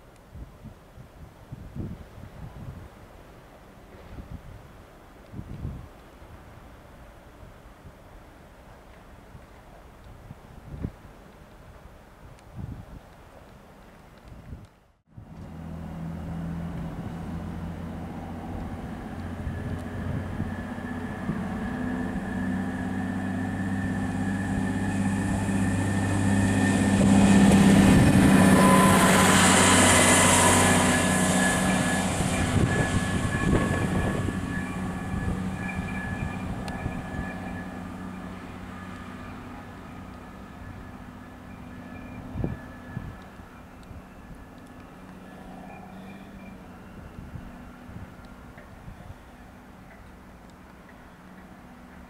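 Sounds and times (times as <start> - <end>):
diesel railcar engine: 15.1 - 52.0
wheels hissing on rails: 16.3 - 52.0.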